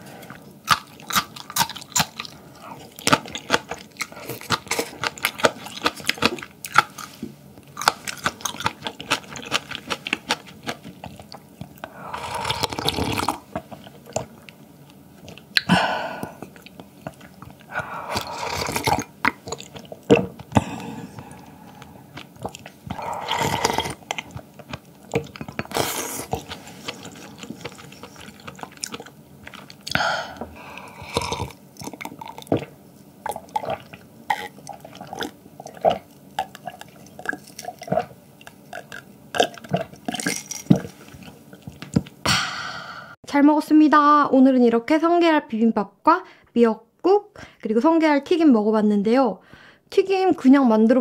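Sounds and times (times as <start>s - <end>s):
wet chewing with mouth clicks: 0.2s - 42.2s
wet slurps: 16.2s - 30.0s.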